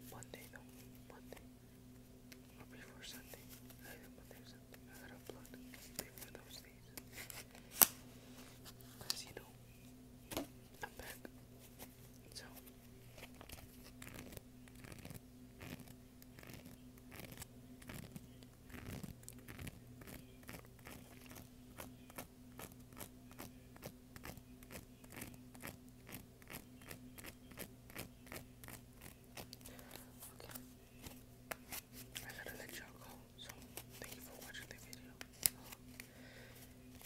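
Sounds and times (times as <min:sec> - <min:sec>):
playing cards clicking: 0:33.4 - 0:36.1.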